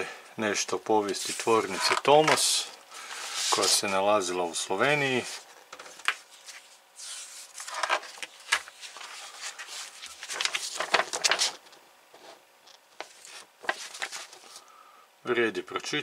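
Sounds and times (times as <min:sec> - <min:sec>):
magazine pages rustling: 0:01.0 - 0:04.2, 0:04.8 - 0:11.6, 0:13.0 - 0:14.7.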